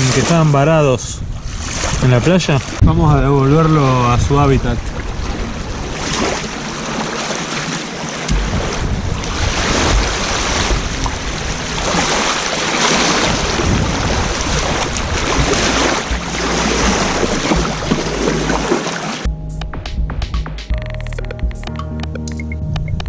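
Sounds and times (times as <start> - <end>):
wind buffeting microphone: 0.0 - 7.0, 8.3 - 18.7
small waves lapping on shore: 1.3 - 19.3.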